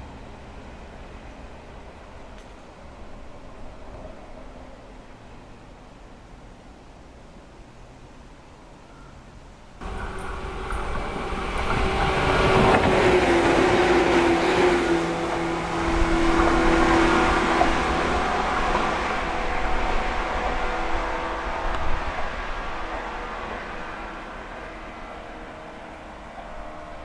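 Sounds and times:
train motor hum: 9.8 - 24.2
train wheels rumbling on rail: 9.8 - 27.0.

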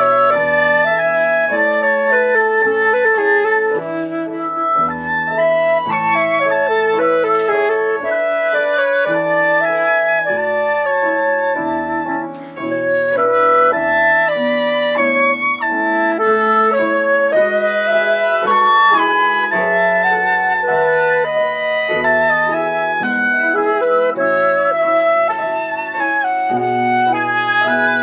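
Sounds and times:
flute and oboe melody: 0.0 - 28.0
piano accompaniment: 0.0 - 28.0.

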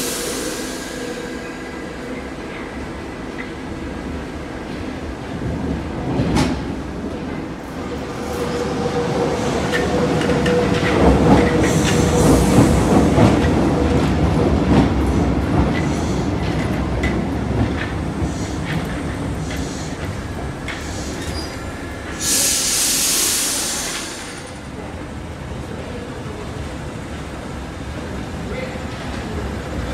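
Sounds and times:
loud hiss: 0.0 - 3.0, 20.8 - 24.6
train whine: 0.0 - 28.2.

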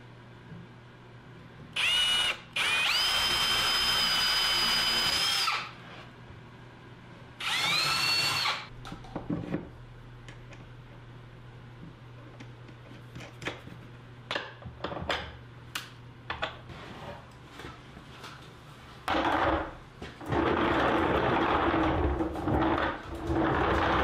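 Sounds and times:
cordless drill whining: 1.8 - 5.7, 7.4 - 8.7.

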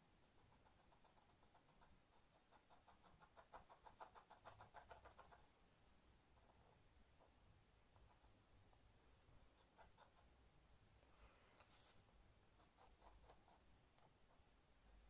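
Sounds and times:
pen nib scratching on paper: 0.2 - 5.5, 9.5 - 10.3, 12.6 - 15.0.

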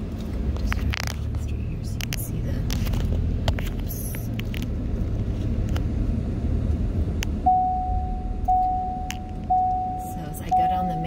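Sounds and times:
car driving slowly: 0.0 - 11.0
vehicle warning chime: 7.4 - 11.0.

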